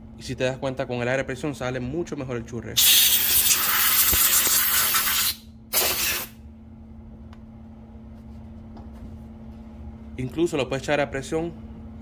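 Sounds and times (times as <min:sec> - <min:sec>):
compressed air blow gun hissing: 0:02.8 - 0:06.3.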